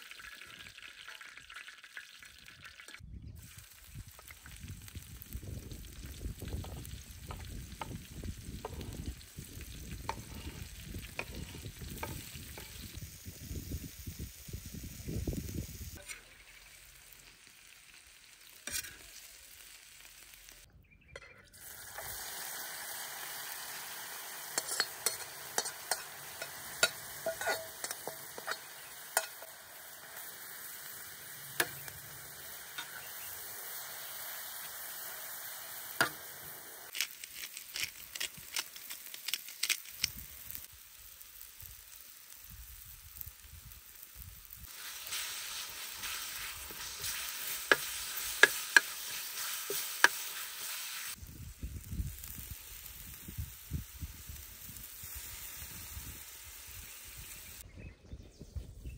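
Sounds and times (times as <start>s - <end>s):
vegetables sizzling in a pan: 0.0s - 20.7s, 21.6s - 57.6s
metal spatula scraping a pan: 16.0s - 16.5s, 18.6s - 19.3s, 24.5s - 30.3s, 30.9s - 33.2s.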